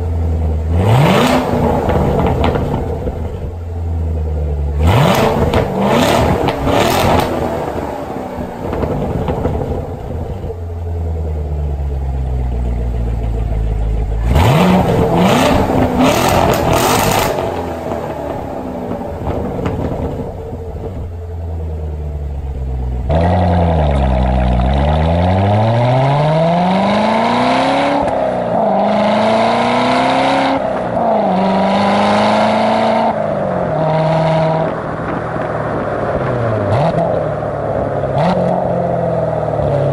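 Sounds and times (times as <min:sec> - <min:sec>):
car engine cold start and idle: 0:00.0 - 0:26.2
car engine accelerating through gears: 0:00.0 - 0:39.9.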